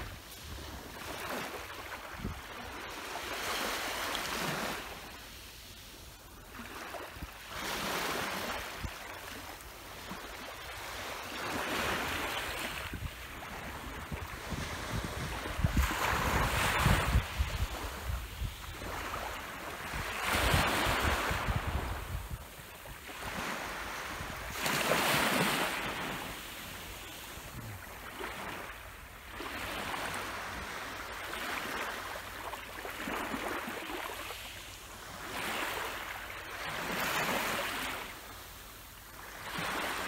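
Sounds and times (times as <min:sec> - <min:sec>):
waves washing on beach: 0:00.0 - 0:40.0
wind on microphone: 0:12.1 - 0:26.2.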